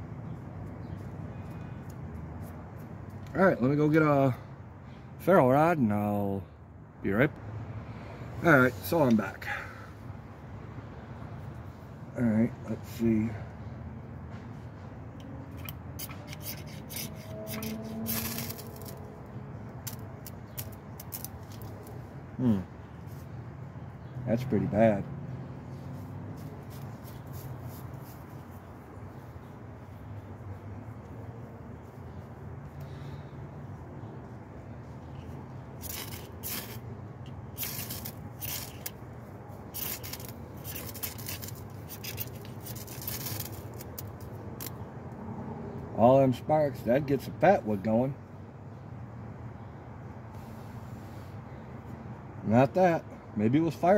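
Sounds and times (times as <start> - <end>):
ferro rod rasping with striker: 15.5 - 19.0, 35.8 - 36.8
ferrocerium rod scraped with striker: 15.5 - 19.1, 35.8 - 36.8, 37.6 - 39.0, 39.7 - 44.7.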